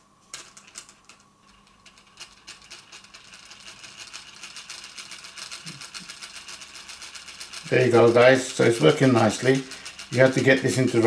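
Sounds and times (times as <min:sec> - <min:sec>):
small engine rapid clicking: 0:01.8 - 0:11.0.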